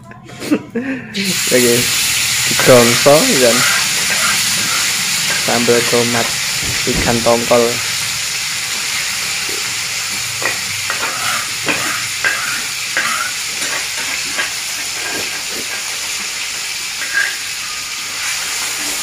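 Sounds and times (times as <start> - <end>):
sauce sizzling in a wok: 1.2 - 19.0
spatula scraping metal wok: 3.4 - 6.4, 10.2 - 16.2.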